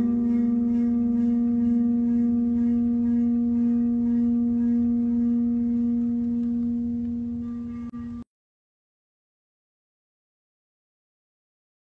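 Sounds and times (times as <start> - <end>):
metal plate ringing low tone: 0.0 - 8.2.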